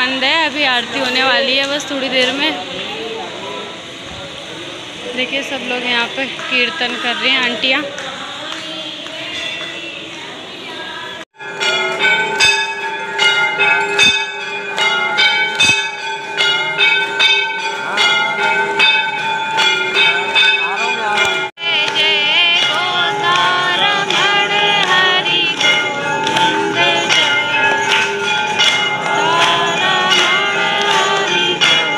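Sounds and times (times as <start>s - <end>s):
temple bells ringing rapidly: 0.0s - 10.2s, 11.4s - 31.9s
voices singing: 4.8s - 11.3s, 21.2s - 31.9s.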